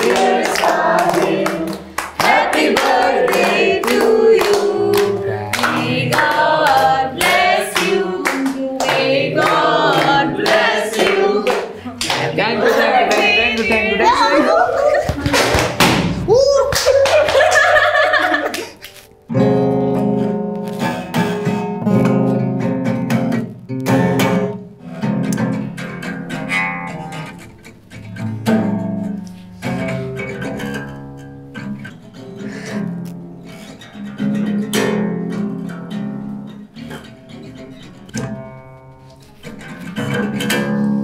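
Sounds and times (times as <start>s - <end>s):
acoustic guitar chords: 0.0s - 16.5s, 17.7s - 41.0s.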